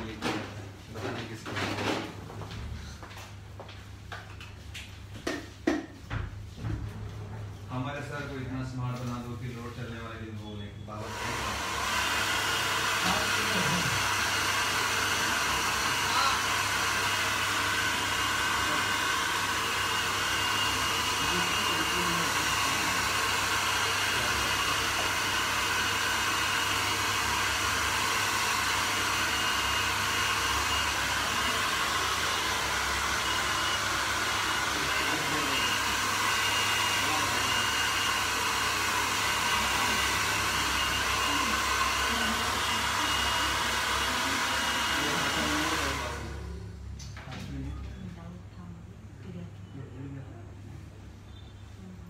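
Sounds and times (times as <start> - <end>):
hair dryer blowing: 10.9 - 46.7.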